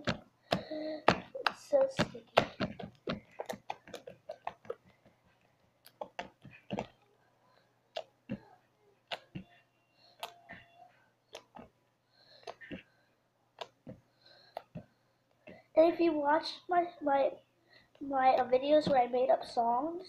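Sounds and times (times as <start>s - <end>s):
slime squeezed with wet pops: 9.1s - 9.5s, 13.6s - 14.8s.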